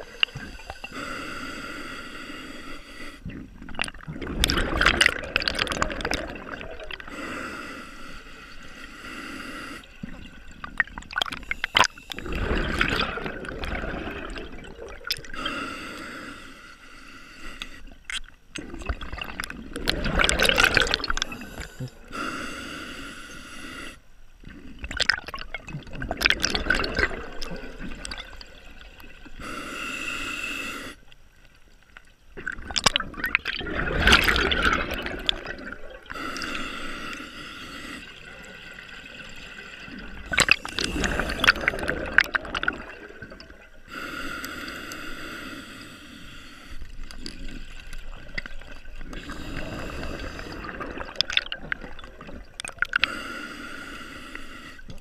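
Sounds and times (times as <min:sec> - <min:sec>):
regulator hissing inhale: 0:00.0 - 0:03.3, 0:07.0 - 0:10.0, 0:15.3 - 0:18.0, 0:21.1 - 0:24.1, 0:29.4 - 0:31.1, 0:36.1 - 0:38.6, 0:43.8 - 0:48.0, 0:49.1 - 0:50.8, 0:53.0 - 0:55.0
exhaust bubbles: 0:03.3 - 0:07.1, 0:10.0 - 0:15.4, 0:32.4 - 0:36.1, 0:38.1 - 0:43.8.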